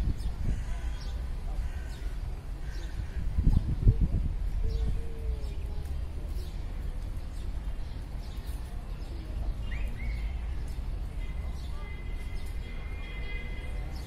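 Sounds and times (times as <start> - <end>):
wind rumble on microphone: 0.0 - 7.4.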